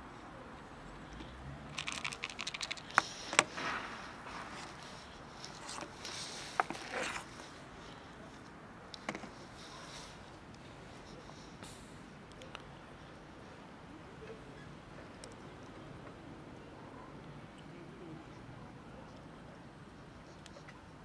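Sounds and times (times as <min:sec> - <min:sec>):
kibble rattling in plastic tub: 0:01.7 - 0:03.6
rustling: 0:01.7 - 0:11.6.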